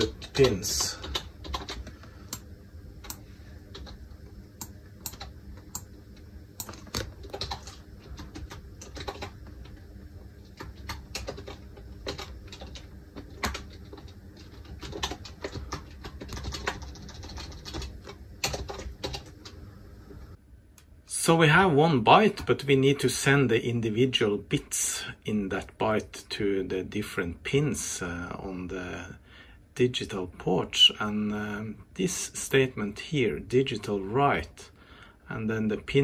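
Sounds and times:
typing on computer keyboard: 0.0 - 2.4, 5.0 - 5.9, 6.6 - 9.8, 10.4 - 19.3.

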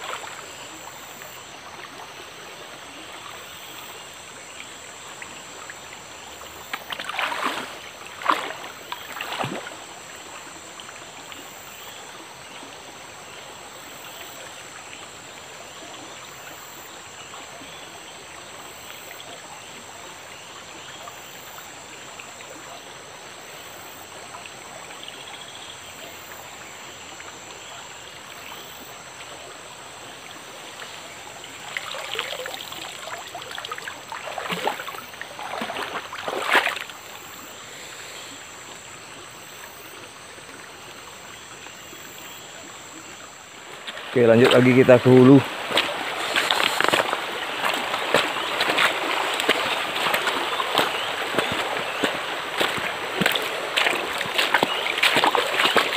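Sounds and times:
water splashing: 0.0 - 12.0, 28.3 - 55.9
flowing stream: 0.0 - 55.9.

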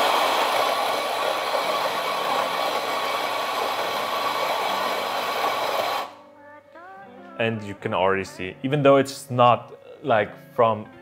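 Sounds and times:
coffee grinder running: 0.0 - 6.1.

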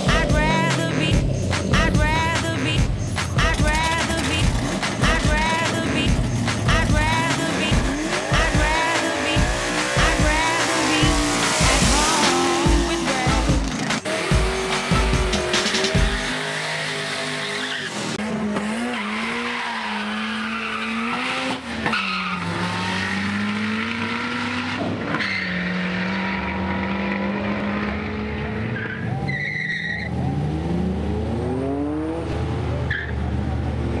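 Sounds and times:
racing car engines revving: 0.0 - 34.0.

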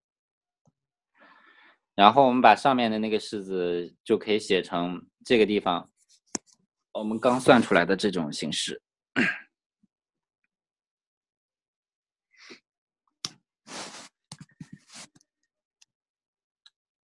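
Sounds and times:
person breathing: 1.2 - 1.9, 13.7 - 14.1
sniff or sigh: 13.7 - 14.2.

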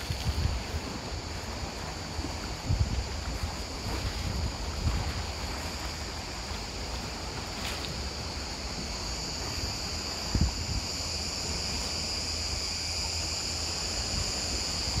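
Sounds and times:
wind buffeting microphone: 0.0 - 13.0, 13.6 - 15.0
high-pitched hiss: 0.0 - 15.0
sea wash: 0.0 - 15.0
gust thumping microphone: 2.2 - 5.7, 8.2 - 11.6.

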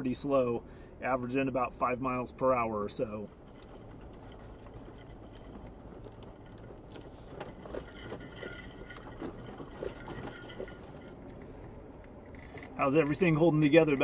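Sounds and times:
low engine and road rumble: 0.0 - 14.0
knocks and rattles from bumps: 3.3 - 14.0.

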